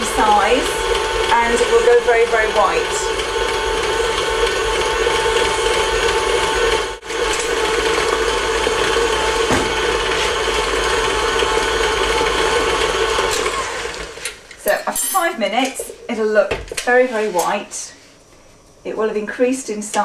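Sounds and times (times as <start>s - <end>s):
stand mixer motor running: 0.0s - 14.4s.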